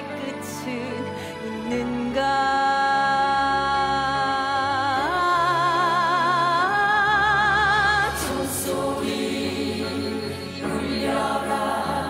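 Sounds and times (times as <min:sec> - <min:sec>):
choir singing with accompaniment: 0:06.6 - 0:12.0.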